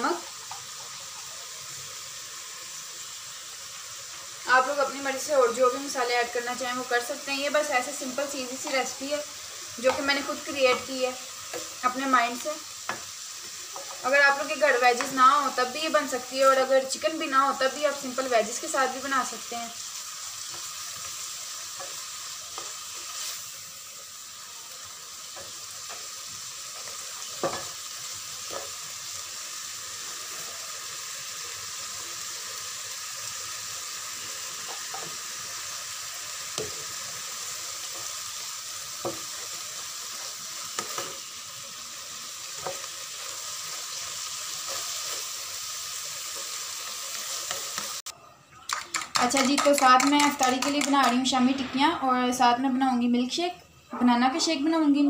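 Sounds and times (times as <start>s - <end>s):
food sizzling in a frying pan: 0.0s - 55.0s
spatula scraping and tapping pan: 12.9s - 14.1s, 26.8s - 27.8s, 40.7s - 41.2s.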